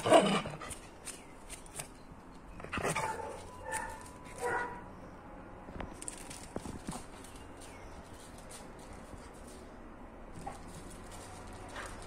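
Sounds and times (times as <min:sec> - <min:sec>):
paws scuffling on paving: 0:00.1 - 0:04.9, 0:05.6 - 0:12.0
dog barking: 0:03.0 - 0:04.8.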